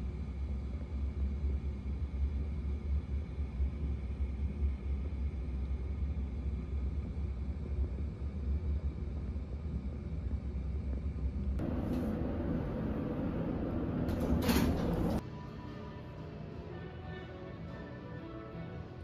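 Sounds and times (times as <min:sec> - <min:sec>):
indoor room sound: 0:00.0 - 0:19.0
city ambience rumble: 0:01.9 - 0:15.2.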